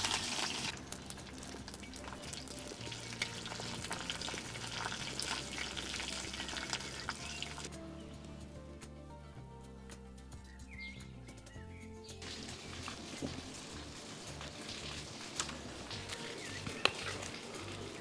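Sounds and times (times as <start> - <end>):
spices sizzling in hot oil: 0.0 - 7.7, 12.2 - 18.0
wooden spatula stirring: 12.2 - 18.0.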